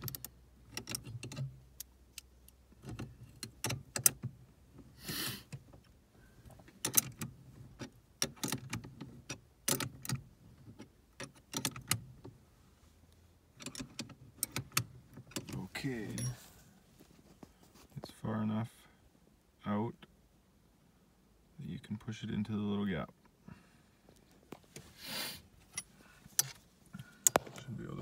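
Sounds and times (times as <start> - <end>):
metallic clinks of hand tools: 16.1 - 16.4.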